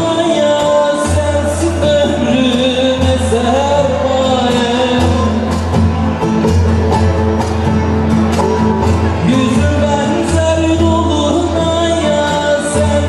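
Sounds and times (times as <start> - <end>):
folk song with lutes and guitar: 0.0 - 13.0
frame drum beat: 0.0 - 13.0
person singing: 0.0 - 13.0.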